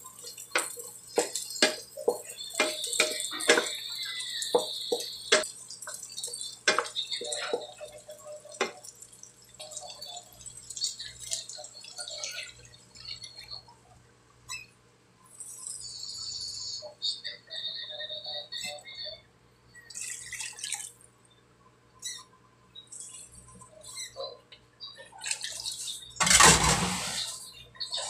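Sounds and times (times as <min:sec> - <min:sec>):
dripping water: 0:00.0 - 0:13.8, 0:19.8 - 0:21.2, 0:22.0 - 0:28.0
cookware knocks and clinks: 0:00.6 - 0:03.8.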